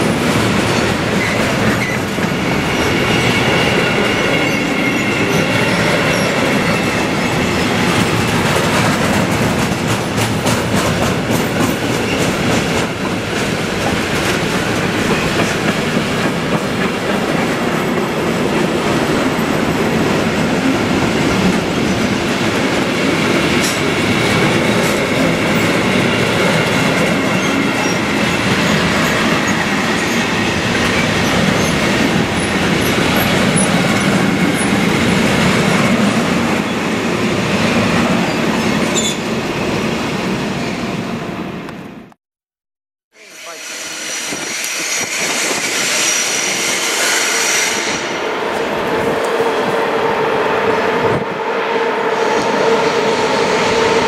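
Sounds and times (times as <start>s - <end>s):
faint high wheel squeal: 1.8s - 7.0s
train wheels clicking over rail joints: 7.8s - 18.1s.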